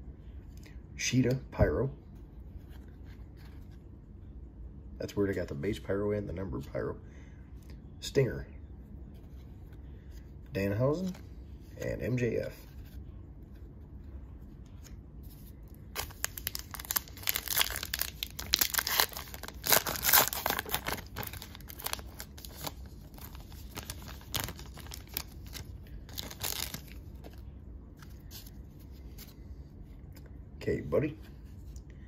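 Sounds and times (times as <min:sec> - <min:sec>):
wrapper tearing and crinkling: 0:15.9 - 0:27.0.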